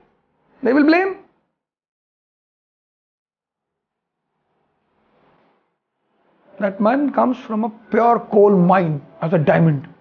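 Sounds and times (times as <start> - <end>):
man speaking: 6.6 - 10.0.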